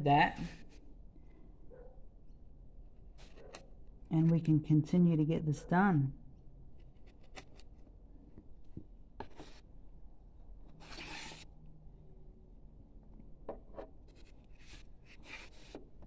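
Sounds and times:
chisel scraping wood: 10.8s - 11.4s, 13.7s - 15.9s.

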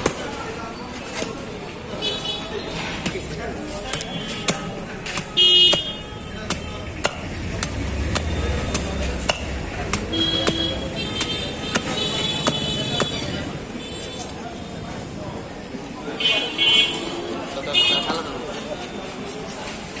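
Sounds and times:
blade chopping fruit husk: 2.9s - 13.5s
vehicle horn: 5.3s - 6.5s, 10.0s - 14.4s.

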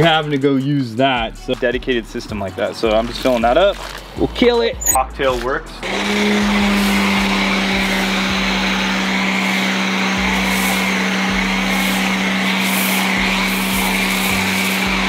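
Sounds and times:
pressure washer humming: 5.8s - 15.0s
foam spraying hiss: 9.4s - 15.0s.

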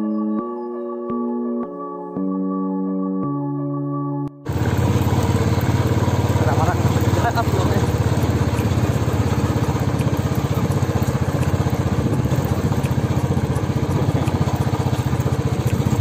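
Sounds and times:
motorcycle engine running: 4.5s - 16.0s.

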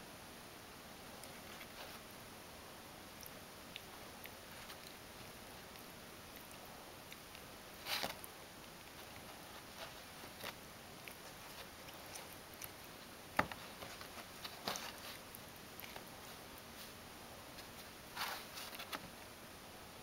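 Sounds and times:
cat chewing twig crunches: 3.2s - 16.3s.

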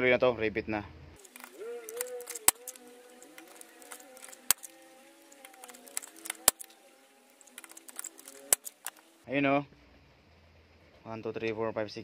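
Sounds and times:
rivet gun clicks and snaps: 1.2s - 9.0s.

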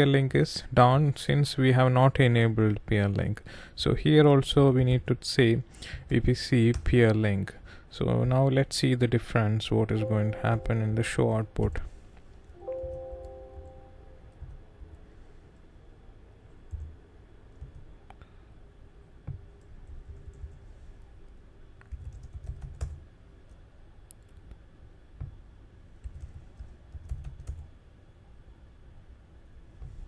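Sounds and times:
computer keyboard typing: 16.7s - 16.9s, 21.8s - 23.0s, 26.0s - 27.6s.

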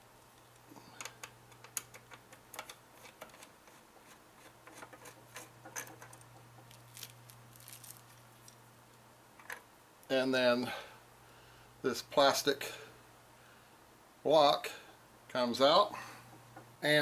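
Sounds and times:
steady low hum: 0.0s - 17.0s
small parts clicking and tapping: 0.4s - 8.6s.

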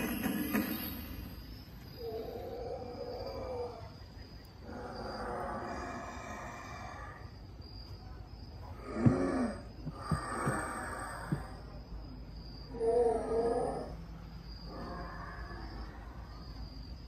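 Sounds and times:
eerie droning tone: 0.0s - 17.0s
loud groan-like cry: 4.6s - 7.2s.

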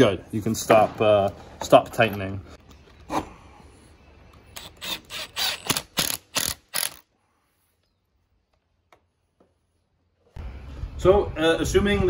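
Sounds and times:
cordless drill driving screw: 4.6s - 7.0s.

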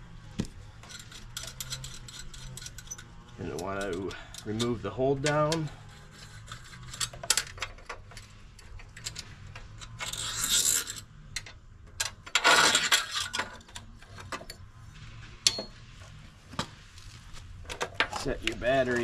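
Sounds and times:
scraping rustles: 0.0s - 11.4s, 12.2s - 19.0s
small parts clicking and tapping: 0.3s - 14.7s.

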